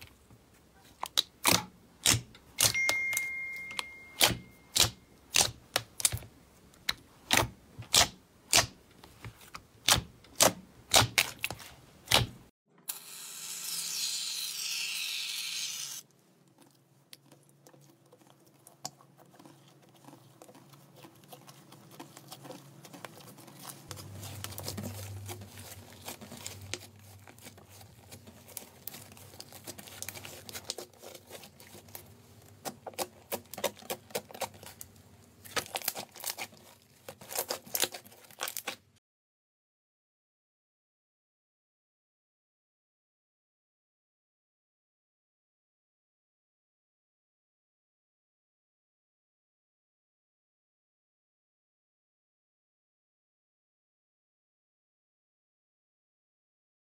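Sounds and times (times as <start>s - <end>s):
slime popping and clicking: 3.7s - 6.2s
slime soft crackling: 16.4s - 38.9s.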